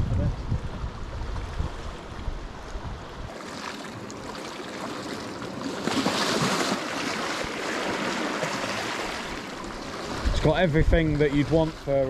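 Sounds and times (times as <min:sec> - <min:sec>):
wind rumble on microphone: 0:00.0 - 0:03.4, 0:09.9 - 0:11.8
sea water surging over rocks: 0:03.3 - 0:12.0.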